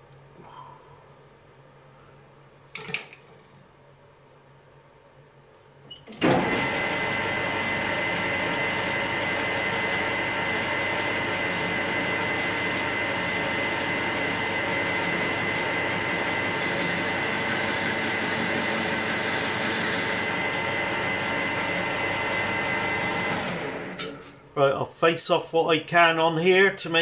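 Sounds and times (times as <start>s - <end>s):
metal lathe running: 6.2s - 24.1s.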